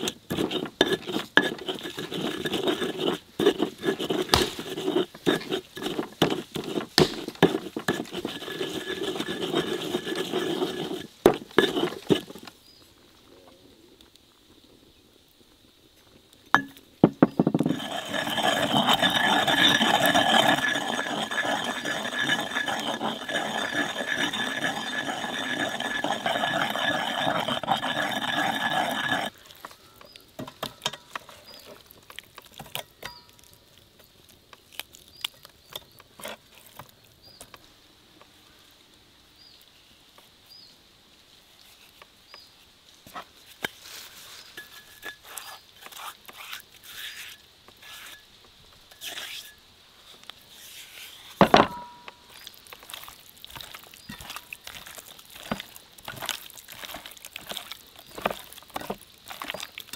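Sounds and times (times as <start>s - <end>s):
pestle grinding paste in mortar: 0.0s - 12.4s, 16.6s - 29.4s, 51.4s - 59.9s.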